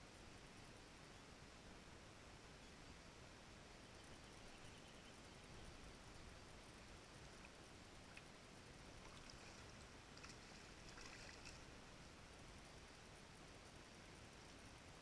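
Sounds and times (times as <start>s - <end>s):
faint river ambience: 0.0s - 15.0s
leg splashing through shallow water: 9.0s - 11.7s.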